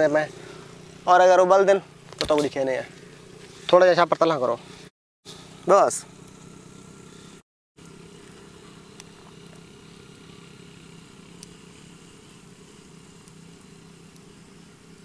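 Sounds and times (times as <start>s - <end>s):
low mechanical hum: 0.0s - 15.0s
faint ticks: 11.3s - 11.6s, 13.2s - 14.3s.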